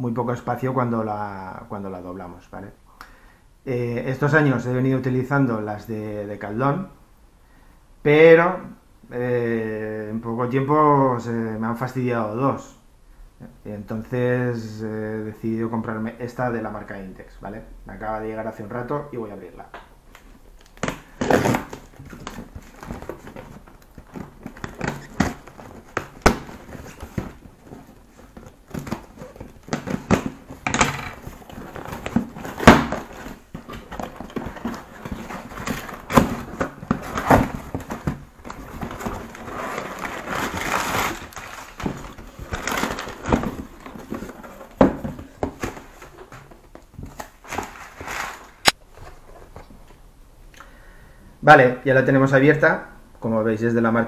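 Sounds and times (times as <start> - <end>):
cardboard flaps rustling: 20.2 - 49.9
packing tape peeling and tearing: 38.5 - 43.4.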